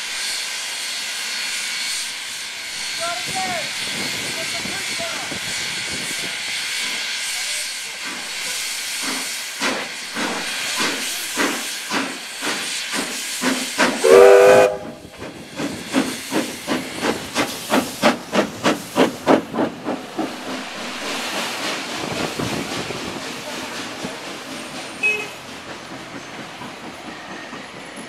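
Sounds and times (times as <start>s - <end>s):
hissing steam: 0.0s - 28.0s
steam locomotive exhaust beats: 0.0s - 28.0s
steam whistle blast: 14.0s - 15.0s, 25.0s - 25.4s.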